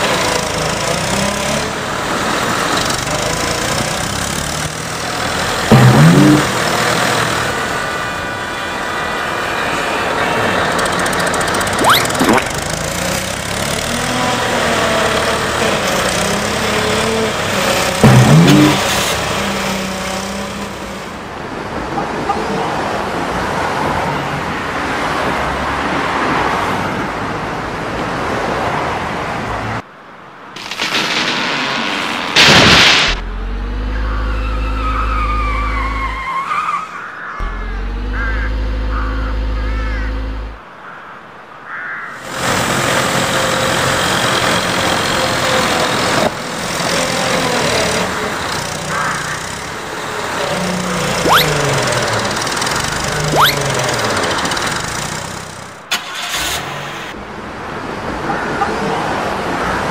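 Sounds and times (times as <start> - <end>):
cartoon engines in traffic: 0.0 - 59.9
loud burst: 30.6 - 33.3
low steady engine hum: 33.2 - 36.2, 37.4 - 40.6
short rising sweep: 51.2 - 52.3, 53.2 - 54.1.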